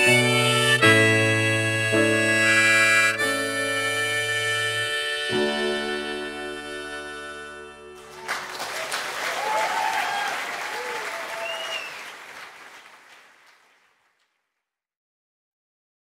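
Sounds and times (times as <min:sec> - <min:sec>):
crowd cheering: 0:08.0 - 0:13.9
crowd applauding: 0:08.0 - 0:14.1.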